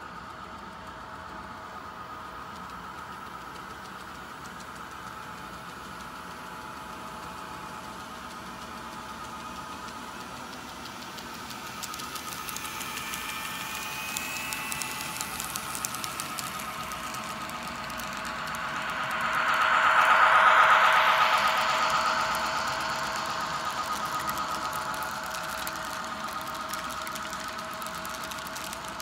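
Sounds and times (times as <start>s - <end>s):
model train locomotive whine: 0.0s - 29.0s
wheels clicking over track: 8.6s - 20.3s, 21.0s - 29.0s.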